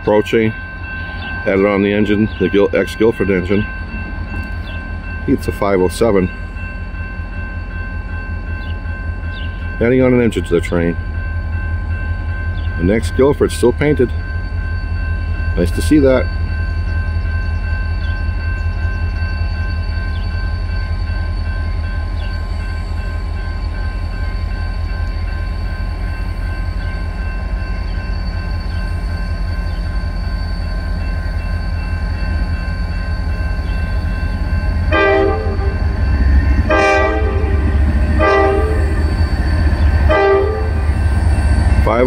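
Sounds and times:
diesel locomotive engine running: 0.0s - 42.0s
locomotive air horn blasts: 34.9s - 35.8s, 36.7s - 39.0s, 40.1s - 40.9s.

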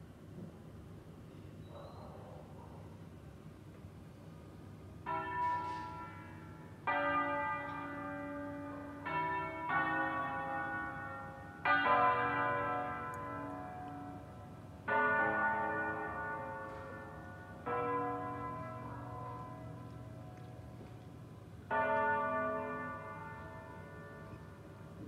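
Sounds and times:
church bells ringing: 5.0s - 25.0s.

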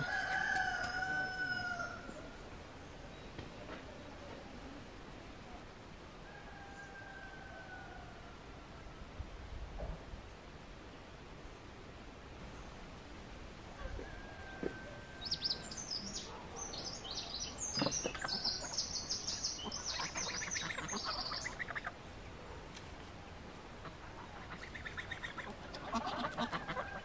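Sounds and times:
small birds chirping: 14.6s - 22.8s, 23.8s - 27.0s
geese honking: 19.5s - 22.0s, 23.8s - 27.0s.

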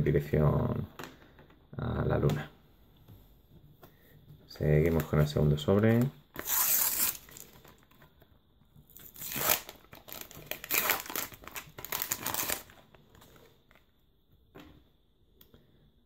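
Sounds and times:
wrapper crinkling and tearing: 6.0s - 7.8s, 8.9s - 13.4s.

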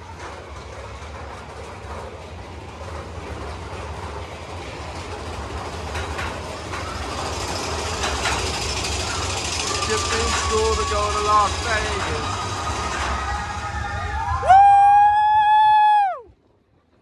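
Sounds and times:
sharp track clacks: 0.0s - 14.4s
roller coaster wheels rumbling: 0.0s - 17.0s.

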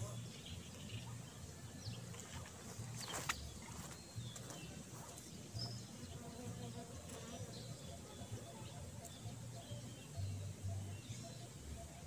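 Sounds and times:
faint bird chirps: 0.0s - 12.0s
flying insect buzzing: 5.0s - 9.3s.

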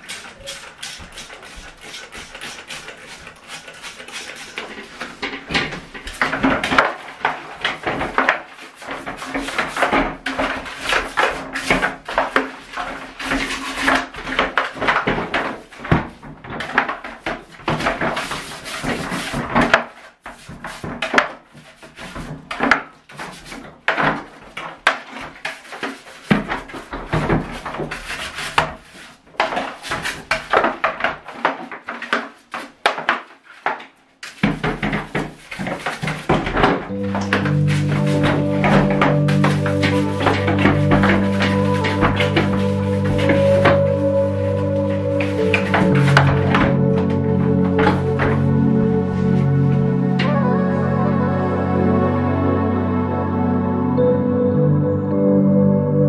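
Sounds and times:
plastic drum knocking against bathtub: 34.3s - 48.7s.

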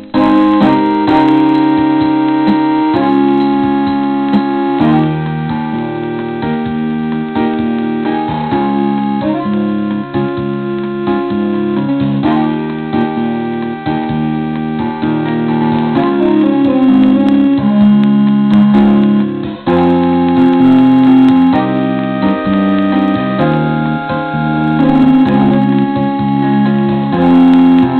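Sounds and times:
electric keyboard chords: 0.0s - 27.9s.

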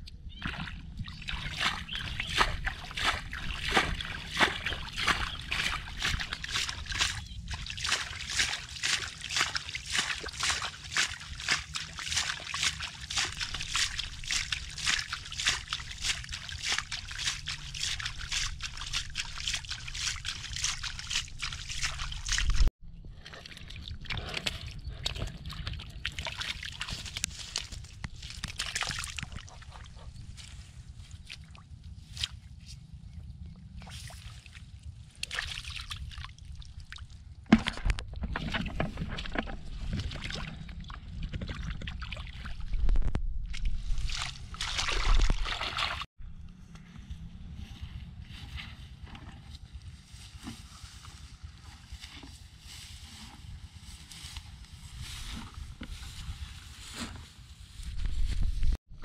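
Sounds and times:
hands splashing in muddy puddle: 0.4s - 29.7s, 35.2s - 42.5s, 43.5s - 46.1s
steady low rumble: 39.3s - 45.3s, 46.2s - 59.0s.

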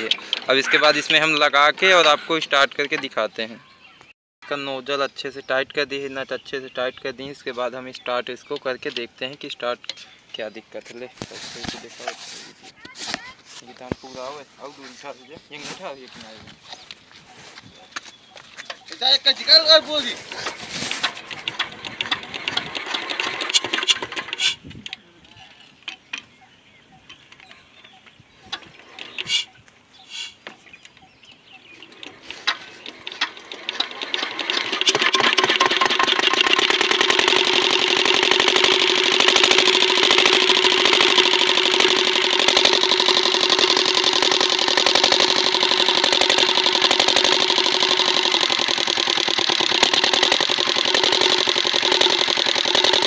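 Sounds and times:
diesel engine running: 31.8s - 53.0s.

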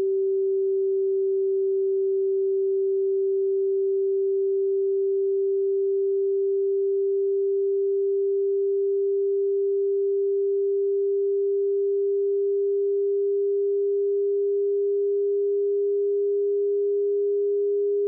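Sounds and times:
pure sine tone: 0.0s - 18.0s.

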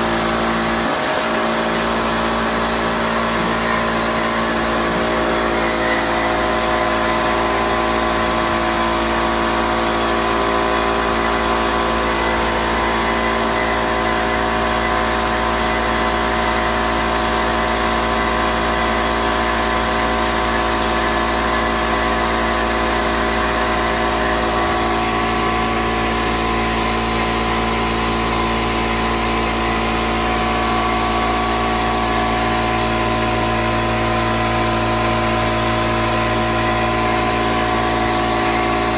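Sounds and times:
spray gun hissing: 0.0s - 2.4s, 15.0s - 15.8s, 16.4s - 24.3s, 26.0s - 28.0s, 35.0s - 36.5s
air machine droning hum: 0.0s - 38.9s.

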